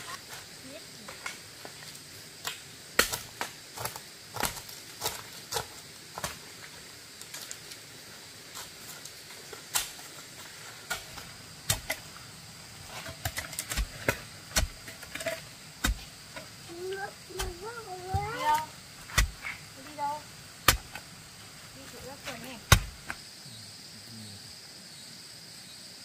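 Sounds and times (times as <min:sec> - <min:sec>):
stones and tools knocking: 0:13.0 - 0:16.5.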